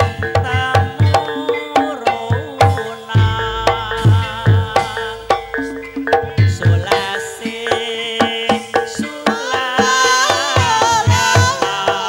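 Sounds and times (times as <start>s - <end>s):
wavering sung melodic line: 0.0s - 8.5s
hand drum beat: 0.0s - 12.0s
struck tuned percussion: 0.0s - 12.0s.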